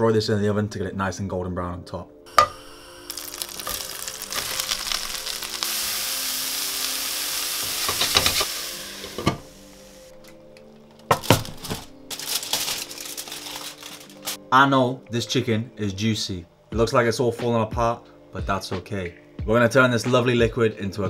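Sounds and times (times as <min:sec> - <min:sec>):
cabbage sizzling in a pan: 0:02.3 - 0:10.1
foil rustling: 0:03.1 - 0:08.5, 0:11.1 - 0:14.4.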